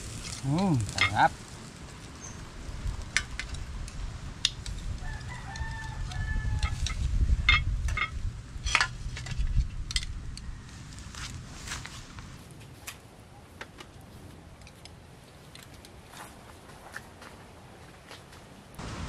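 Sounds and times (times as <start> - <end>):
metal tongs clanking on grill: 0.1 - 1.3, 5.4 - 10.1
rooster crowing: 5.0 - 7.0.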